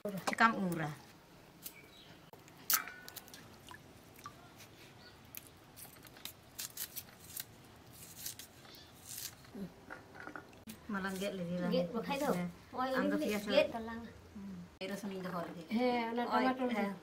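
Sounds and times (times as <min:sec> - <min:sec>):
blade slicing onion: 0:06.5 - 0:09.6.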